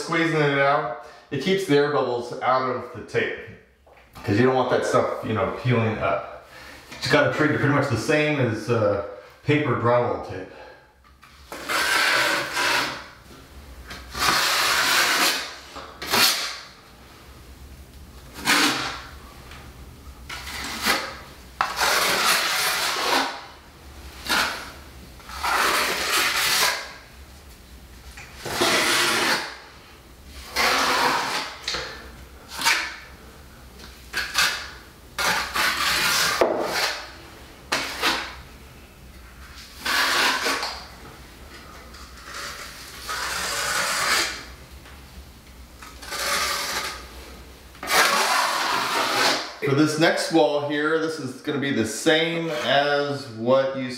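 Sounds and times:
putty knife scraping tape: 11.2 - 13.2, 13.9 - 16.7, 18.3 - 19.1, 20.3 - 23.5, 24.2 - 27.0, 28.2 - 29.7, 30.4 - 33.1, 33.8 - 38.4, 39.4 - 40.9, 41.5 - 44.5, 45.8 - 47.1, 47.8 - 49.6, 52.4 - 52.8.

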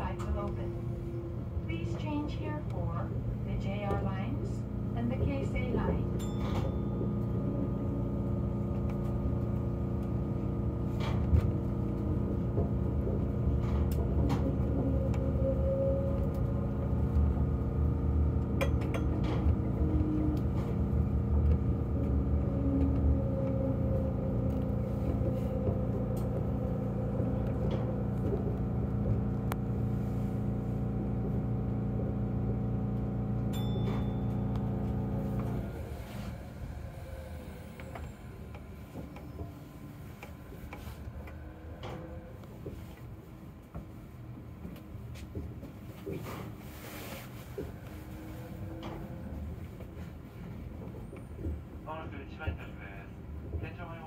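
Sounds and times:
monorail mechanical hum: 0.0 - 54.0.

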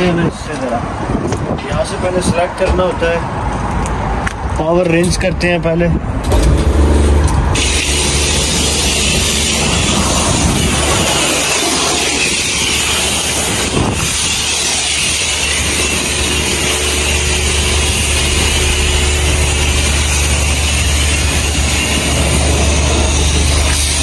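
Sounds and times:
low hum: 6.2 - 24.0
high-pressure water spraying: 7.6 - 24.0.

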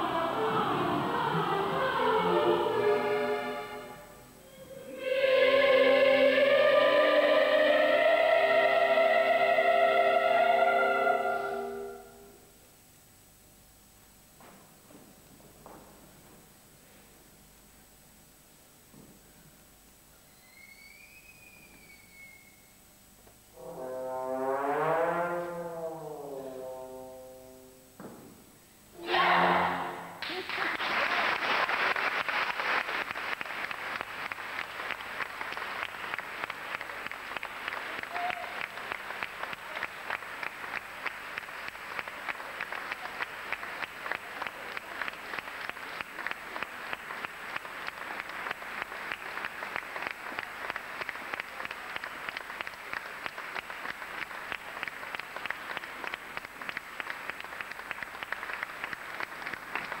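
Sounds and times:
audience applauding: 30.2 - 60.0.

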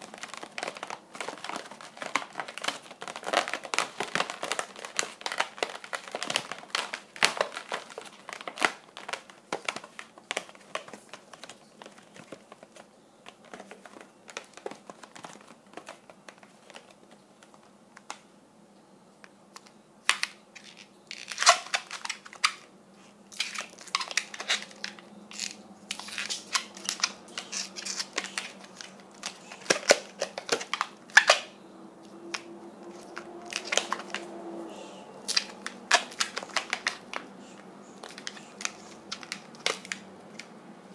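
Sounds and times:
balloons squeaking when twisted: 20.2 - 22.7, 23.3 - 40.5.

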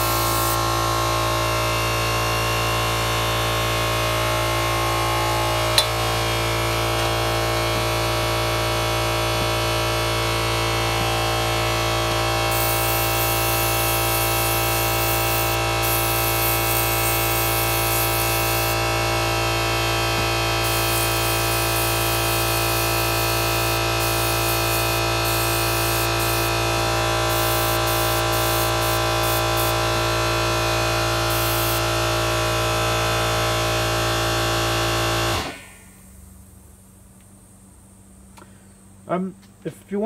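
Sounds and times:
airbrush spraying hiss: 0.0 - 0.6, 12.5 - 18.8, 20.6 - 26.6, 27.2 - 29.8, 31.3 - 31.8
airbrush compressor humming: 0.0 - 35.9.

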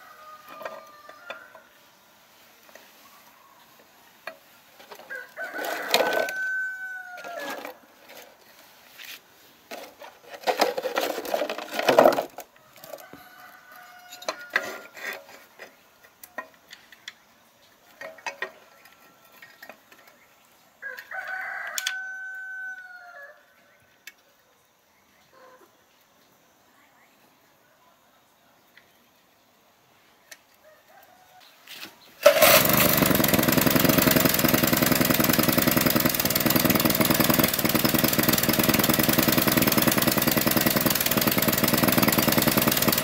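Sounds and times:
rooster crowing: 0.0 - 1.7, 5.0 - 7.8, 12.6 - 15.0, 20.8 - 23.7, 30.6 - 31.8.

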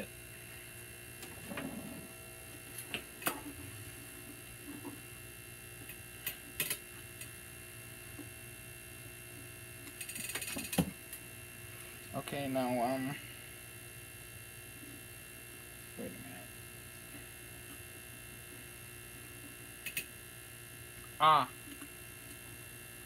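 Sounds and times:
steady electrical hum: 0.0 - 23.0.

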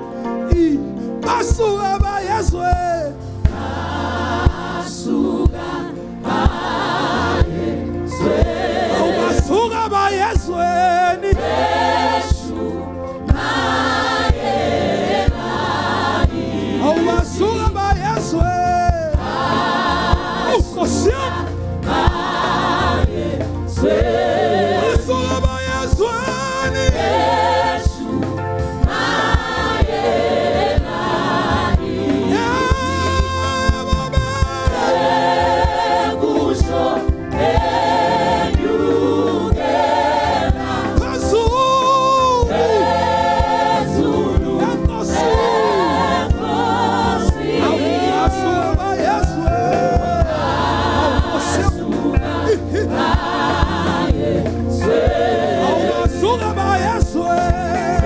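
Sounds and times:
keyboards bass and beat: 0.6 - 58.0
choir singing: 3.4 - 58.0
man singing lead: 16.8 - 19.2, 24.8 - 27.2, 32.3 - 35.0, 40.9 - 42.8, 47.6 - 50.5, 55.9 - 58.0.

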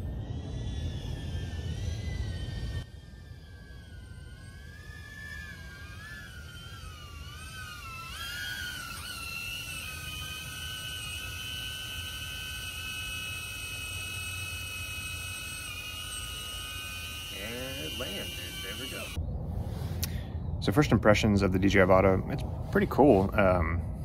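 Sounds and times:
drone propellers whining: 0.0 - 24.0
low rumble: 18.3 - 24.0.

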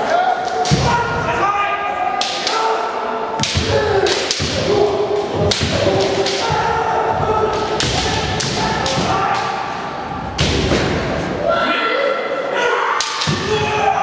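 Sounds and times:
people shouting: 0.0 - 14.0
bamboo swords striking: 3.4 - 9.7.

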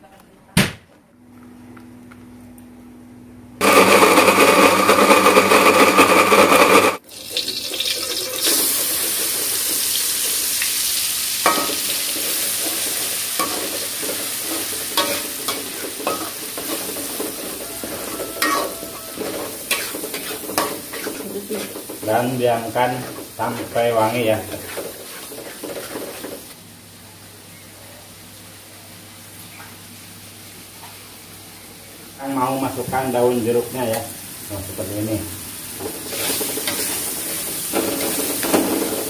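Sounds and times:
electric blender grinding: 3.6 - 7.0, 16.8 - 21.9
paste sizzling in hot oil: 7.0 - 26.6, 33.5 - 39.0
metal spoon scraping wok: 11.5 - 26.4, 35.8 - 39.0.

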